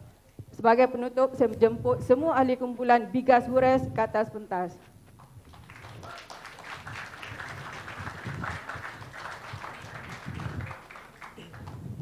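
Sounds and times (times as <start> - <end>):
audience clapping: 5.2 - 12.0.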